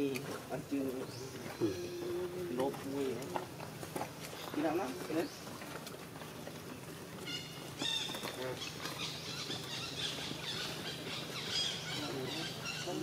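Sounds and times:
monkey squealing: 7.2 - 13.0.

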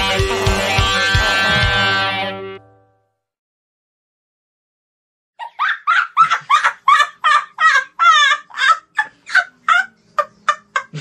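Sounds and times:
man laughing heartily: 5.4 - 11.0.

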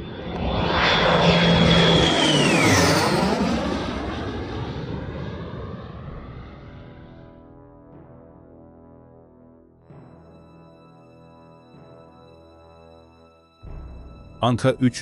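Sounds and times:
aircraft engine roar flyby: 0.0 - 8.0.

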